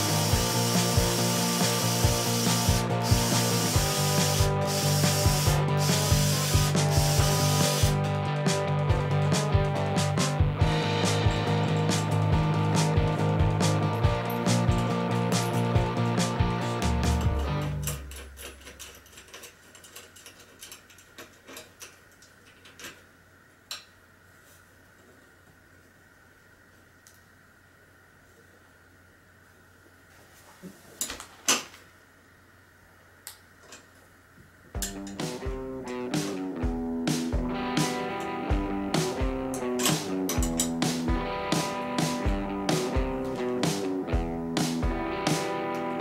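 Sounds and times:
drill cutting metal: 0.0s - 8.0s
background music with beat: 0.0s - 17.8s, 34.8s - 46.0s.

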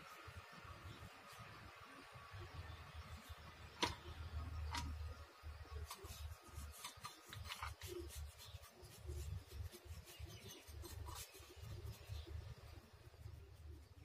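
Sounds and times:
paintbrush scratching on metal: 5.7s - 14.0s.

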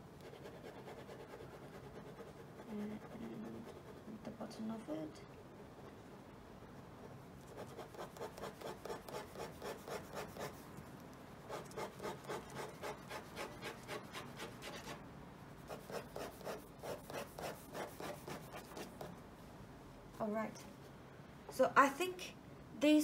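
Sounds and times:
ballpoint pen scratching paper: 7.5s - 10.6s, 11.5s - 15.0s, 15.7s - 19.1s.

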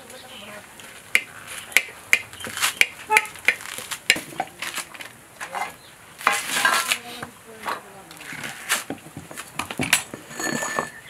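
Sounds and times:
coconut fibres tearing: 2.2s - 5.1s.

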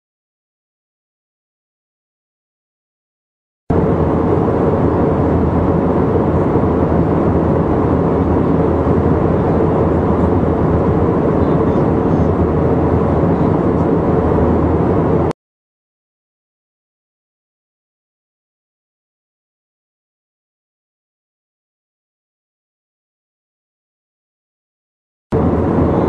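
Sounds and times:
low even hum: 3.7s - 15.3s, 25.4s - 26.0s
airliner cabin drone: 3.7s - 15.4s, 25.3s - 26.0s.

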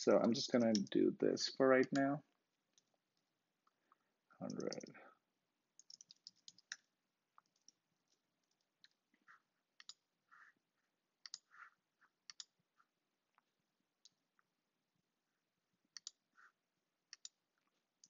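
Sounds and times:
keyboard typing: 0.0s - 1.0s, 1.8s - 3.2s, 4.4s - 5.0s, 5.7s - 10.1s, 11.2s - 12.6s, 15.9s - 16.3s, 17.1s - 18.0s
mouse clicks: 0.2s - 0.9s, 4.4s - 4.9s, 5.8s - 9.0s, 9.8s - 10.0s, 11.2s - 11.5s, 12.2s - 12.6s, 15.9s - 16.2s, 17.1s - 17.4s.

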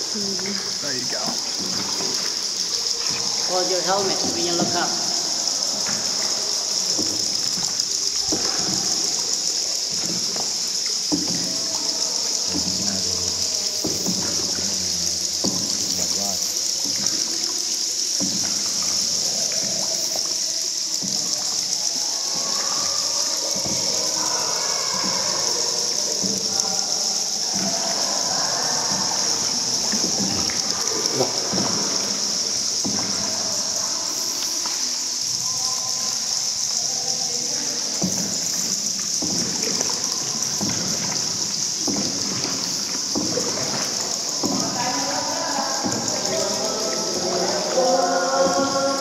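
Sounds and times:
steady high-pitched hiss: 0.0s - 49.0s
water trickling and splashing: 0.0s - 49.0s.

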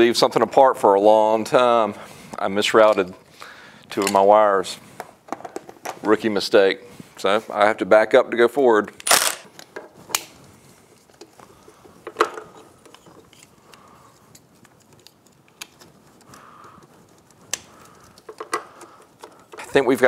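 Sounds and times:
plastic connectors clicking: 12.0s - 19.8s.

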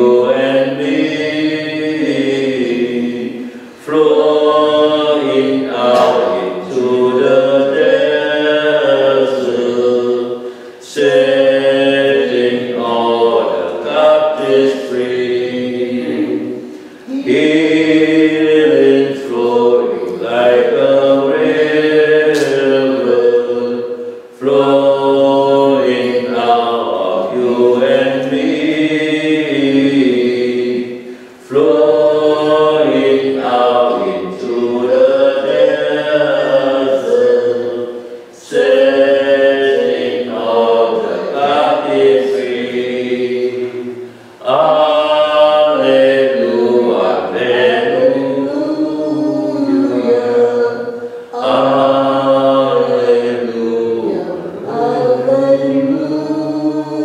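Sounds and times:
unaccompanied hymn singing: 0.0s - 57.0s.

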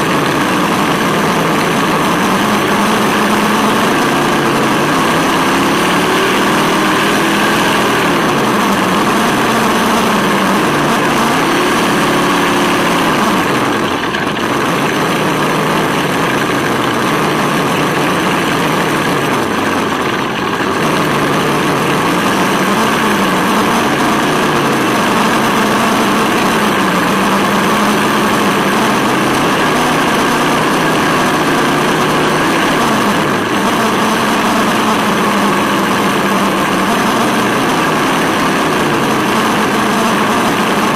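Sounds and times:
road and wind noise: 0.0s - 40.9s
simulated engine sound: 0.0s - 40.9s.

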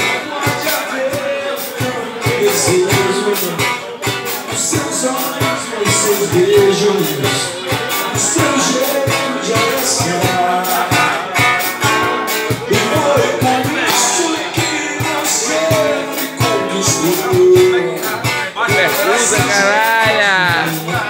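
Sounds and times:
cajon and cymbal percussion: 0.0s - 21.0s
strummed acoustic guitar: 0.0s - 21.0s
person singing: 12.5s - 21.0s.

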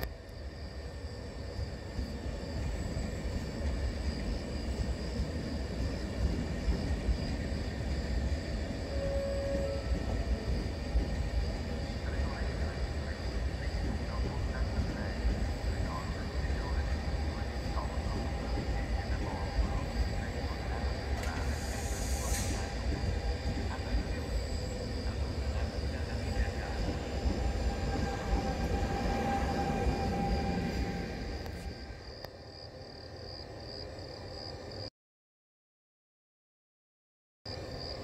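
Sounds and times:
freight train rumbling on rails: 0.0s - 34.8s
short high hiss: 21.4s - 22.8s.

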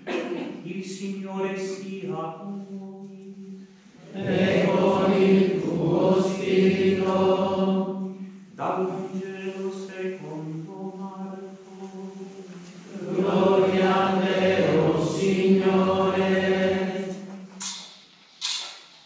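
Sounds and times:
group chanting: 4.0s - 9.5s, 12.8s - 17.5s.

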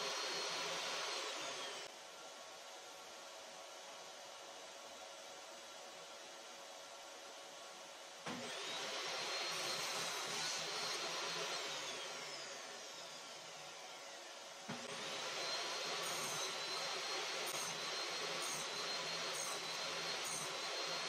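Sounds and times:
table saw running: 0.0s - 1.9s, 8.3s - 21.0s.

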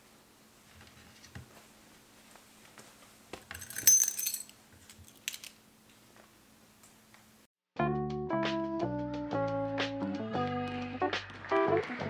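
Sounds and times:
light clicks and knocks of items: 3.4s - 6.0s
keys jingling: 3.5s - 5.5s.

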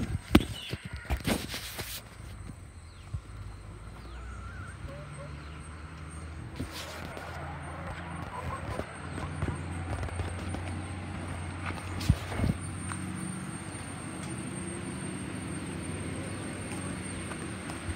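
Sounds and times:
low motor hum: 2.0s - 17.9s.

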